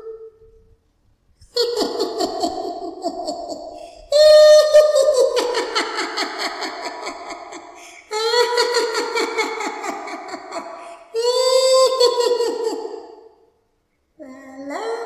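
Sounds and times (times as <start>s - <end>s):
girl laughing creepily: 1.4s - 13.4s.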